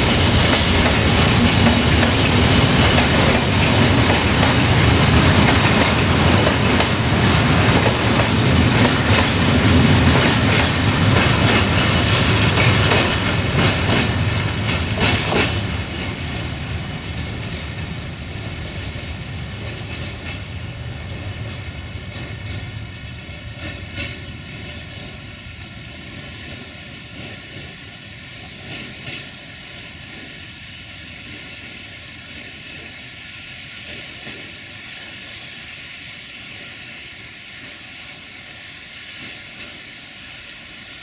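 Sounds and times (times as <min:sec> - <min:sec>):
train wheels clattering on rail joints: 0:00.0 - 0:30.5, 0:33.8 - 0:35.2
train rumble: 0:00.0 - 0:41.0.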